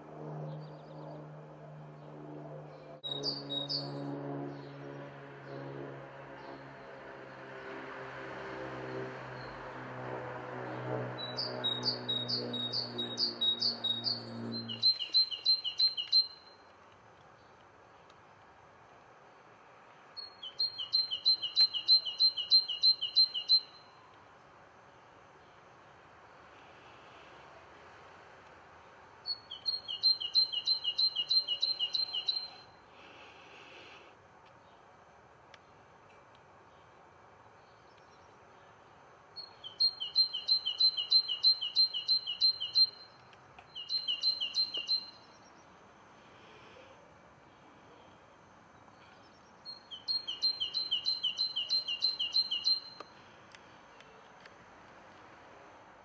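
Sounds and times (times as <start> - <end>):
songbird singing two-note phrases: 11.2 - 16.5, 20.2 - 24.0, 29.3 - 32.6, 43.7 - 45.3, 49.7 - 53.0.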